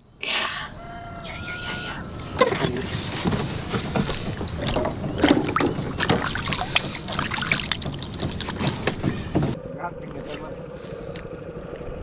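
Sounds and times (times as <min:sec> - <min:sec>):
water splashing against boat: 0:02.0 - 0:09.6
fish slipped into water: 0:04.1 - 0:09.2.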